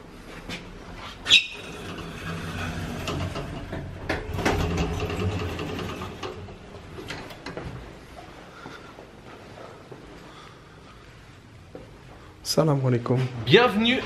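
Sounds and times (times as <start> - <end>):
lift doors sliding open: 1.3 - 7.6.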